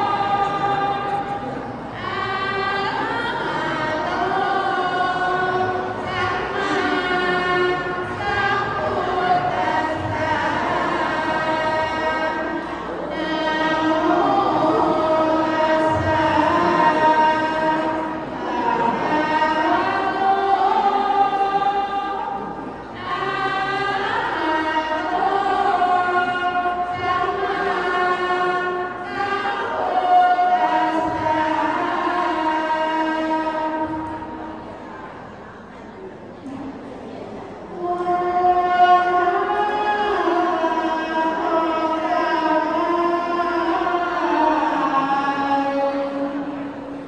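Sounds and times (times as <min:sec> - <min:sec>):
women chanting together: 0:00.0 - 0:34.8.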